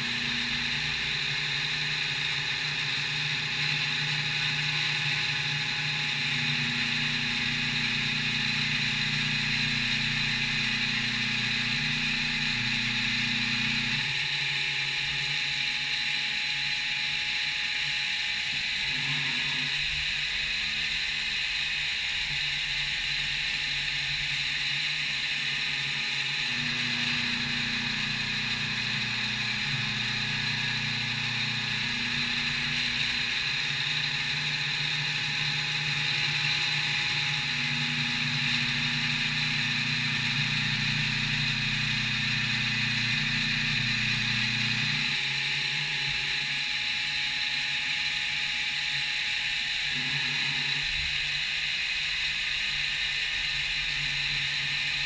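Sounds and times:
low machine hum: 0.0s - 55.0s
milling machine hiss: 0.0s - 55.0s.

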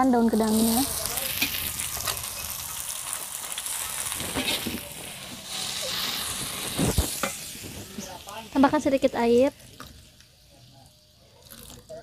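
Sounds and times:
leaves sizzling in a wok: 0.0s - 12.0s
spatula scraping a wok: 0.6s - 8.3s.

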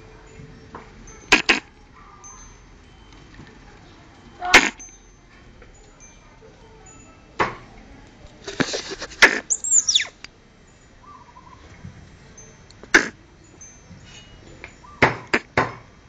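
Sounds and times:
small animal barking calls: 1.3s - 2.5s, 9.0s - 10.2s, 12.9s - 13.2s.

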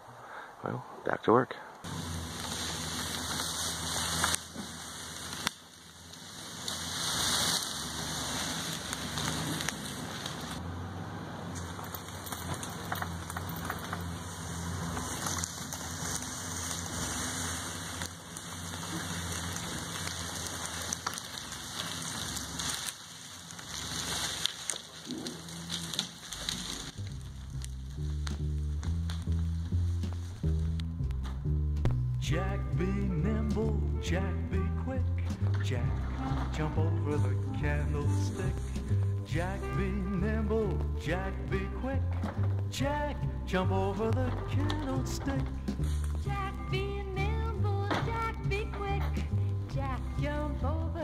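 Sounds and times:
log dragging across leaves: 1.9s - 10.7s, 11.4s - 51.0s
pickup truck engine running: 1.9s - 51.0s.

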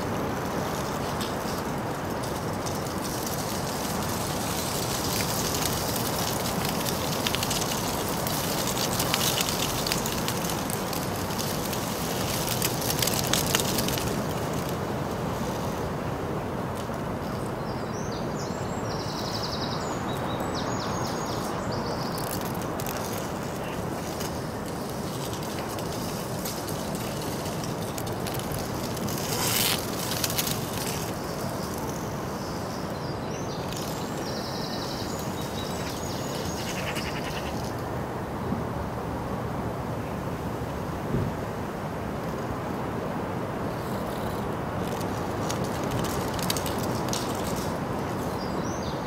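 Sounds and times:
outdoor town ambience: 0.0s - 49.0s
small birds chirping: 17.3s - 26.9s, 28.2s - 37.8s, 45.6s - 49.0s.

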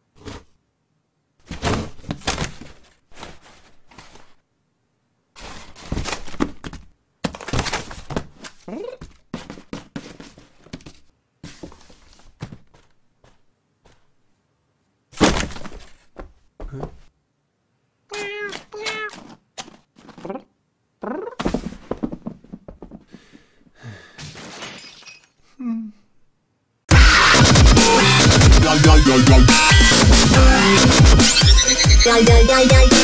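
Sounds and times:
thumps and clattering knocks: 21.4s - 23.4s.

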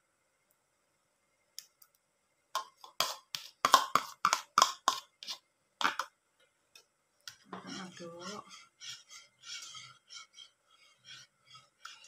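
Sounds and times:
spoon tapping and scraping a bowl: 2.6s - 12.0s.

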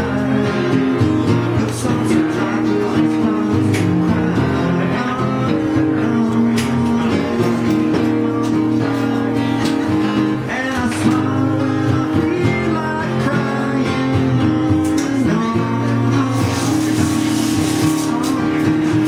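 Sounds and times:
strummed acoustic guitar: 0.0s - 19.0s.

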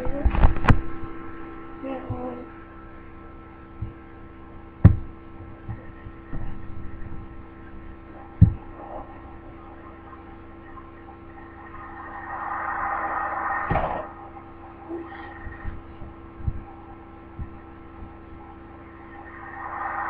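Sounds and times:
steady electrical hum: 0.0s - 20.0s
soft bumps: 4.8s - 7.3s.

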